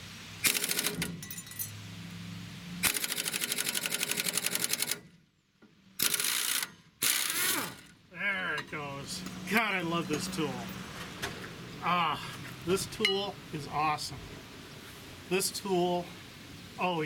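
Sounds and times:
pneumatic impact wrench hammering: 0.4 - 1.4, 2.8 - 5.0, 6.0 - 7.9.

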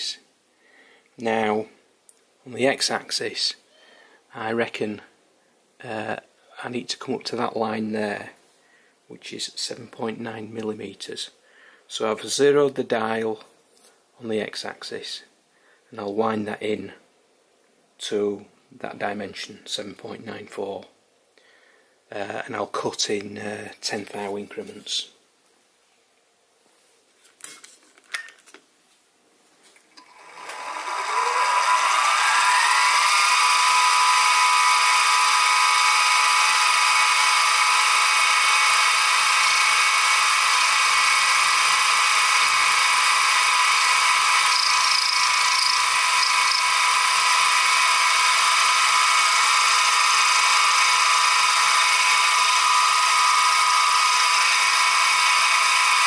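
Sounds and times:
end mill cutting metal: 29.8 - 56.0
mill spindle motor whining: 29.8 - 56.0.

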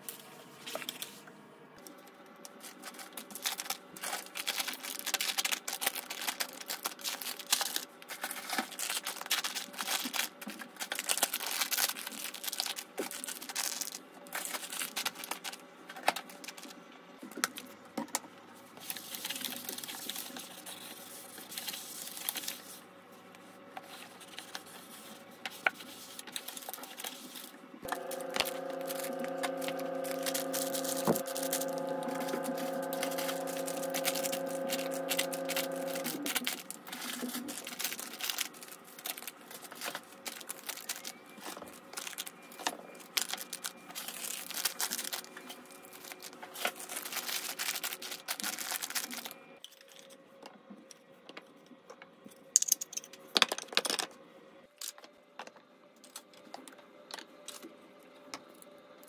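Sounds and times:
background music: 27.9 - 36.4.

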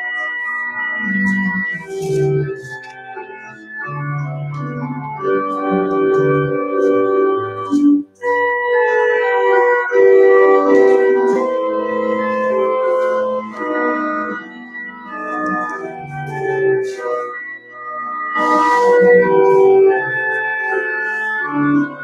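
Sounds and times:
organ chords: 0.0 - 22.0.

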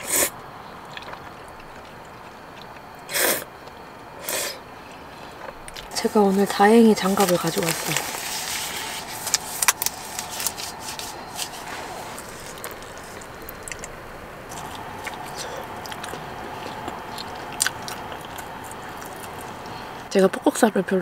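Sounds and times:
steady background hum: 0.0 - 21.0
disposable gloves crinkling: 5.8 - 13.9.

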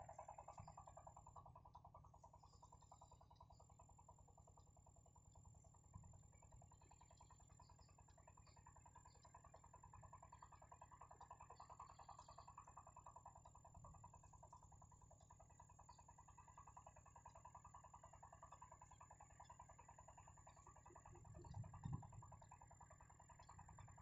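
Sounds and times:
faint rapid pulsing drone: 0.0 - 24.0
tiny ticks: 6.3 - 24.0.

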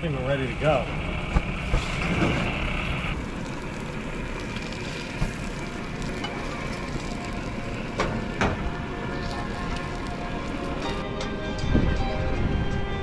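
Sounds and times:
fish sizzling on a grill: 3.1 - 11.0.

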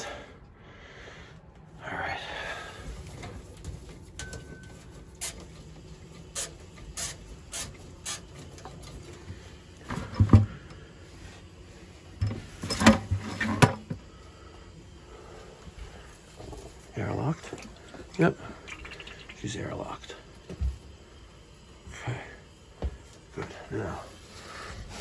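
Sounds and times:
clunks and knocks on pipes: 9.9 - 10.6, 12.2 - 14.0.

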